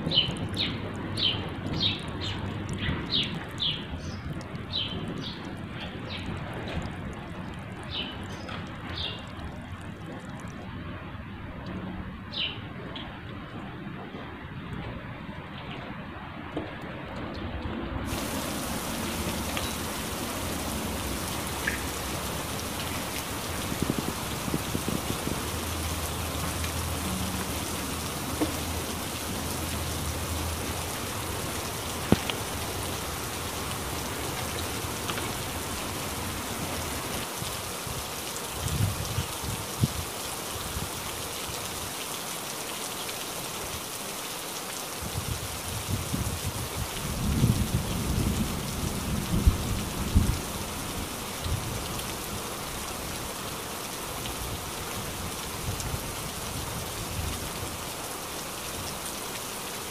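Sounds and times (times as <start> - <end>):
rain falling on leaves: 0.0 - 17.4, 18.0 - 59.9
drip ticks: 0.2 - 10.7, 21.5 - 22.0, 32.0 - 32.7.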